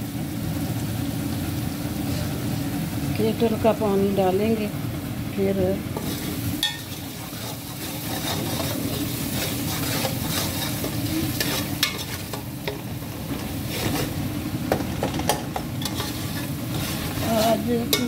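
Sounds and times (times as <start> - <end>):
broth boiling with bubbling: 0.0 - 18.0.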